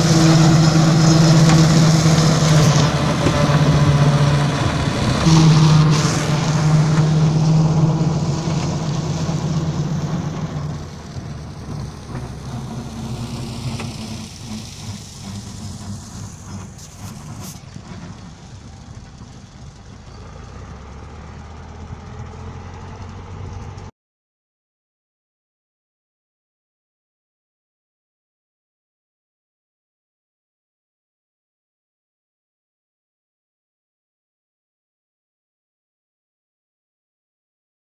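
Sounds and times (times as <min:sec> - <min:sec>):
tractor diesel engine running: 0:00.0 - 0:23.9.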